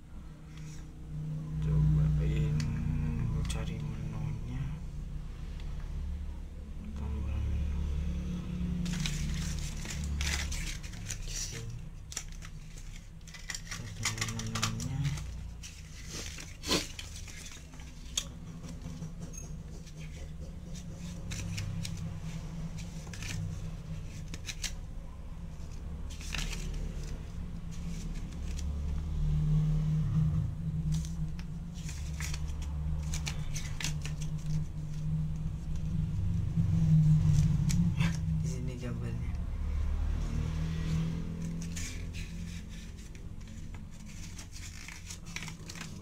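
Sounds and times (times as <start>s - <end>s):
paper rustling and crackling: 8.8s - 19.0s, 19.7s - 29.0s, 30.8s - 36.2s, 40.1s - 46.0s
low rumble: 25.0s - 46.0s.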